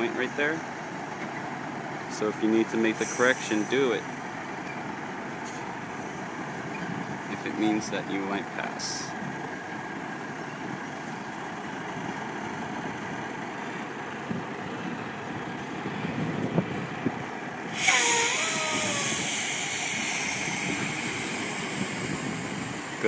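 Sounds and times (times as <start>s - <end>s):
diesel truck engine running: 0.0s - 23.0s
air brake hiss: 2.8s - 4.1s, 17.7s - 23.0s.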